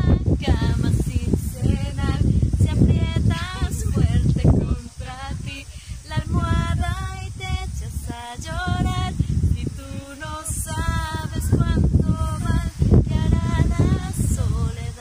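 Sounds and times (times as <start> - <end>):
women singing unaccompanied: 0.0 - 15.0.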